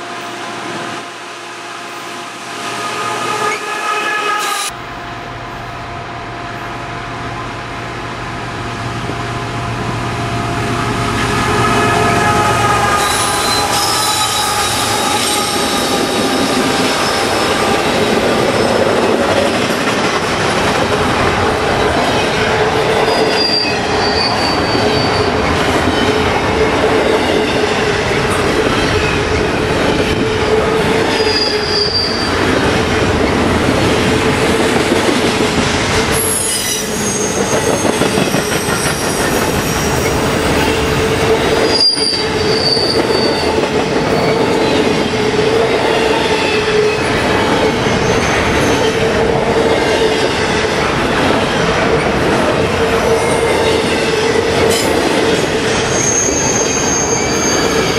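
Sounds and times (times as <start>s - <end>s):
freight train wheels rumbling: 0.0s - 57.9s
wheel squeals: 23.0s - 25.6s, 31.1s - 32.4s, 36.1s - 40.8s, 41.4s - 44.5s, 55.8s - 57.9s.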